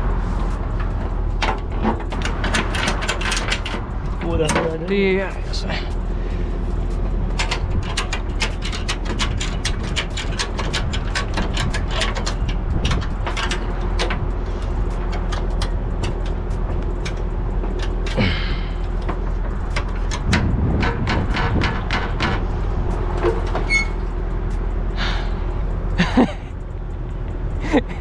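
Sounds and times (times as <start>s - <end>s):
steady low rumble: 0.0s - 28.0s
ratchet strap clicking: 0.8s - 4.2s, 5.9s - 24.8s.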